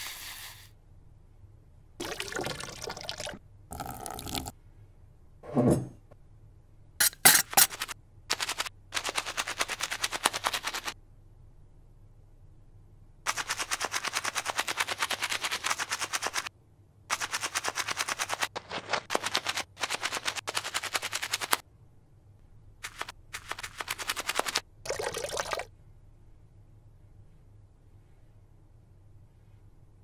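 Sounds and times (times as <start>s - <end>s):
brush scrubbing in soapy liquid: 13.3s - 16.5s.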